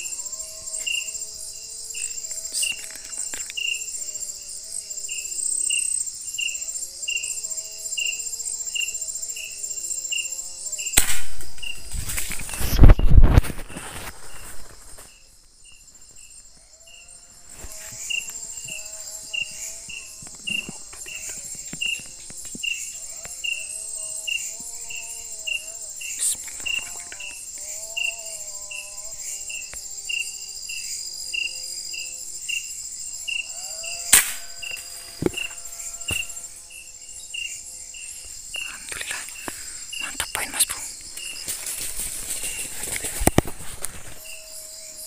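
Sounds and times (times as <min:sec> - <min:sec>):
cricket chirping: 0:00.0 - 0:45.0
high-pitched insect hum: 0:00.0 - 0:45.0
lower wavering insect calls: 0:00.0 - 0:45.0
sharp click: 0:34.1 - 0:34.4.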